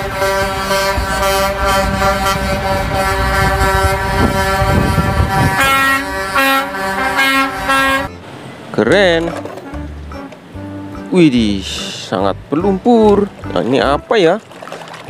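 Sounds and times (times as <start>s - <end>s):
truck air horns: 0.0s - 8.1s
truck engines rumbling: 0.0s - 15.0s.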